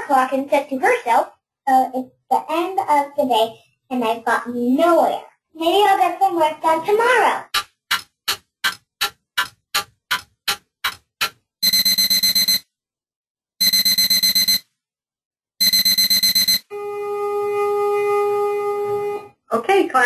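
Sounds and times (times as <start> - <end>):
clock ticking: 7.4 - 12.6
alarm clock beeping: 7.9 - 12.7, 13.6 - 14.7, 15.6 - 16.8.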